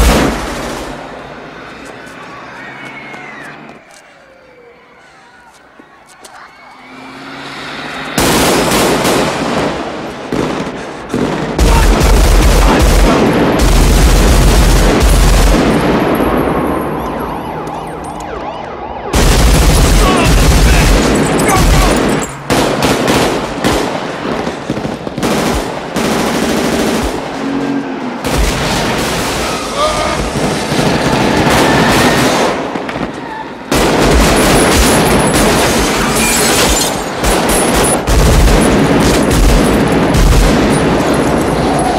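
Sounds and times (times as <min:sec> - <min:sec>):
automatic rifle fire: 0:08.2 - 0:16.0, 0:33.7 - 0:41.0.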